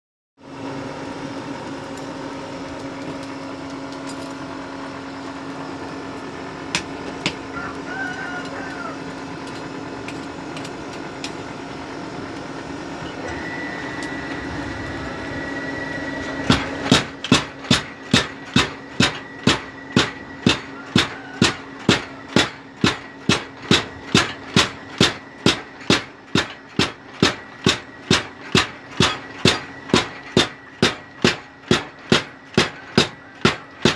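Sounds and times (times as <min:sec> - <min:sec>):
forge air blower humming: 0:00.4 - 0:33.9
power hammer striking hot steel: 0:06.7 - 0:11.4, 0:16.1 - 0:33.9.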